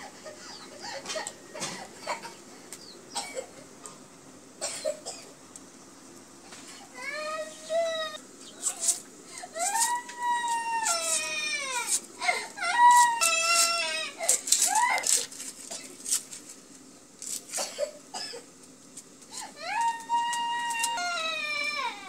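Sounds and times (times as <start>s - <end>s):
small child crying: 6.9s - 15.4s, 19.4s - 22.0s.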